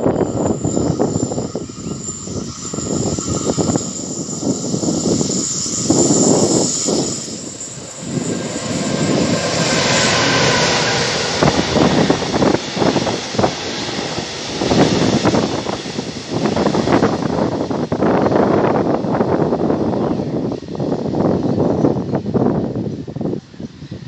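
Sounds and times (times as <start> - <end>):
locomotive whooshing hiss: 0.0 - 24.0
train wagons rumbling on rails: 0.0 - 24.0
wind buffeting microphone: 0.0 - 24.0.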